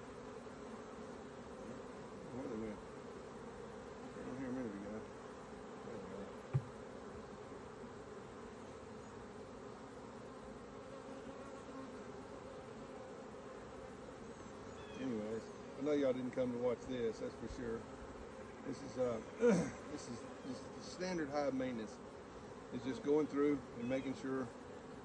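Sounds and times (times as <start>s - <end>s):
honeybees buzzing: 0.0s - 25.0s
sharp knock: 6.5s - 6.7s.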